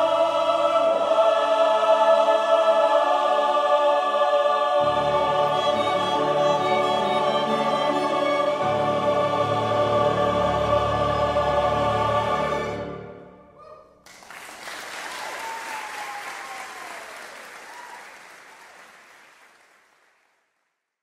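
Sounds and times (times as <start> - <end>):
choir and strings holding a chord: 0.0 - 13.5
audience applause: 14.1 - 20.5.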